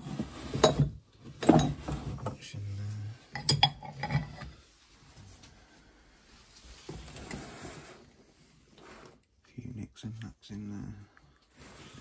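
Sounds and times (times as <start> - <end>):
drawer contents rattling: 0.0 - 2.4
glass jars clinking: 0.5 - 2.3, 3.3 - 4.5.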